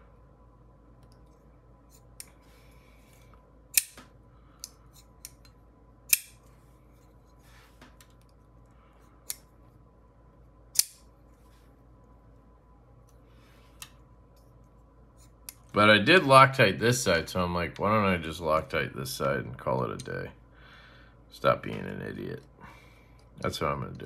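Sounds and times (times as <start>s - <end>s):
folding knife blade snapping open: 6.1s - 6.4s, 10.8s - 11.0s.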